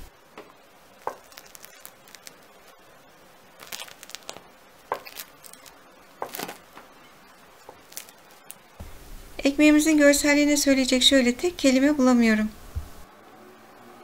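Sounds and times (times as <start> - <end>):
bread crust crackling: 0.4 - 10.4.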